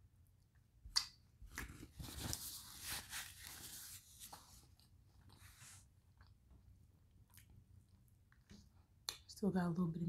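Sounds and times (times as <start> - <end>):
paper napkin rustling: 1.7 - 4.7.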